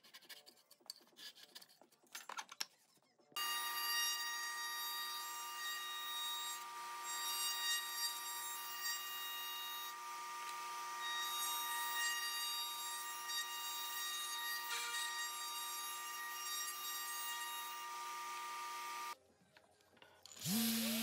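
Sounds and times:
router whining while cutting wood: 3.4 - 19.2, 20.3 - 21.0.

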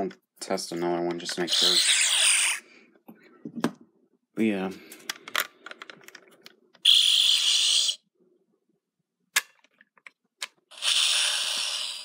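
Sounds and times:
toy electronic hissing effects: 1.5 - 2.6, 6.8 - 8.0, 10.7 - 12.0.

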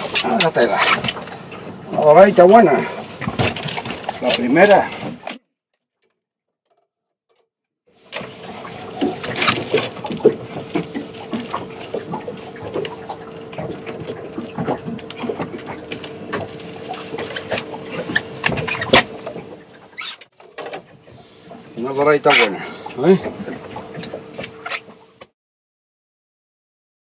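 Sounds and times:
steady mechanical hum: 8.0 - 25.3.

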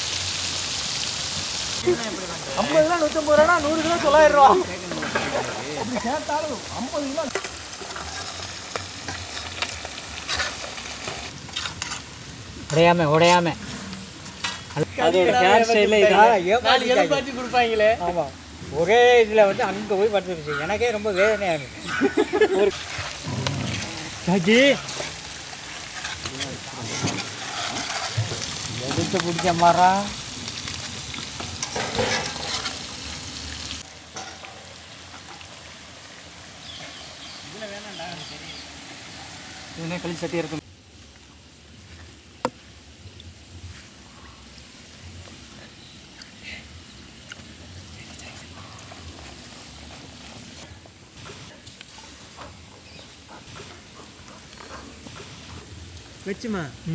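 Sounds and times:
fish sizzling in oil: 0.0 - 56.9
metal tongs scraping pan: 4.8 - 5.7, 7.3 - 8.5, 9.1 - 12.0, 22.7 - 29.7, 31.4 - 32.9.

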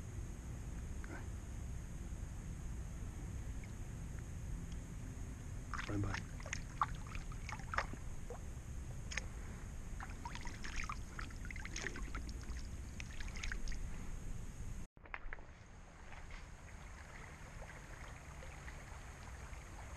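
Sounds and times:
steady low rumble: 0.0 - 19.9
water splashing and lapping: 5.6 - 14.2, 15.0 - 19.9.

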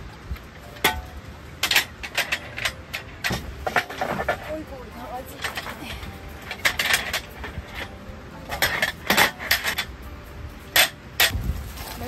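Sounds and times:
hard objects clinking: 0.8 - 10.0.

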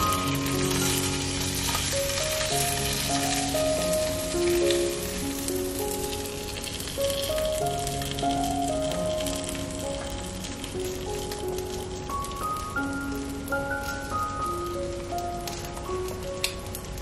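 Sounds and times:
soft instrumental music: 0.0 - 17.0.

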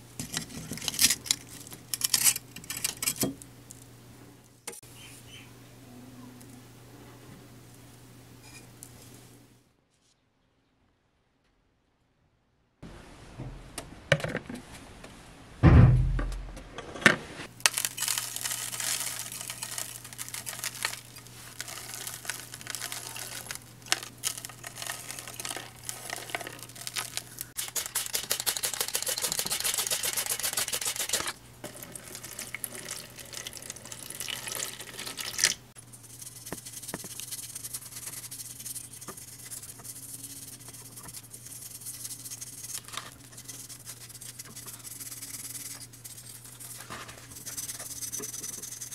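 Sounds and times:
low steady hum: 0.0 - 11.9, 12.5 - 48.9
powdered detergent pouring: 17.7 - 35.4.

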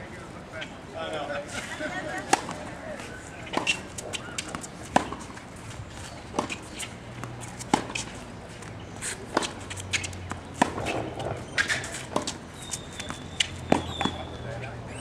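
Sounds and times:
crowd murmur: 0.0 - 5.3
tennis ball struck and bouncing: 3.5 - 5.3, 6.3 - 8.1, 9.3 - 12.4, 13.0 - 14.2.

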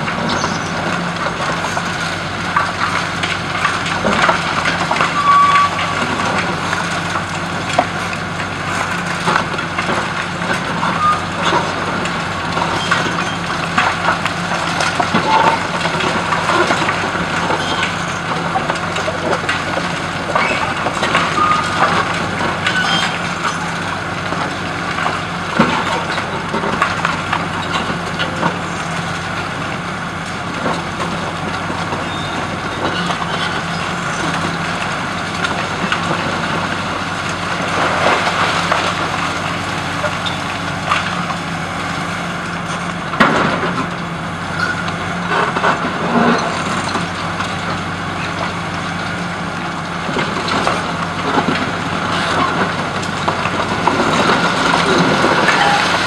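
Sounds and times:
concrete cracking and crunching: 0.0 - 56.0
diesel engine running: 0.0 - 56.0.

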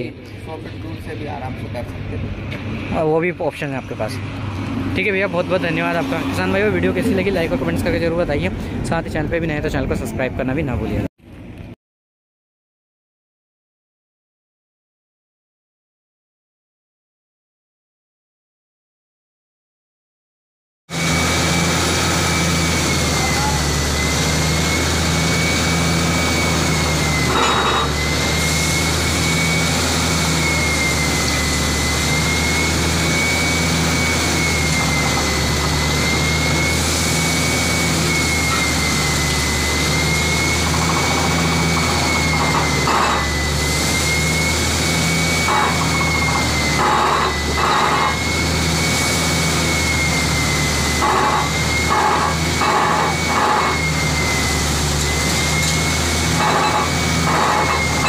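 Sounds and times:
diesel engine droning: 0.0 - 11.0, 20.9 - 58.0
high wavering whine: 0.0 - 11.0, 20.9 - 58.0
bursts of harsh noise: 20.9 - 58.0.

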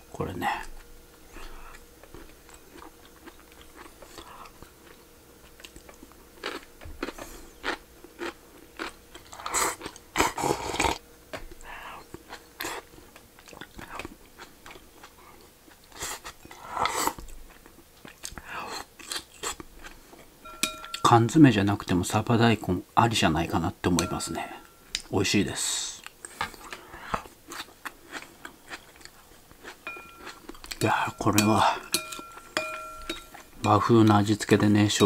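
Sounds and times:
man chewing food: 0.5 - 21.0, 26.0 - 33.6
chopsticks clicking on bowls: 29.9 - 34.6.

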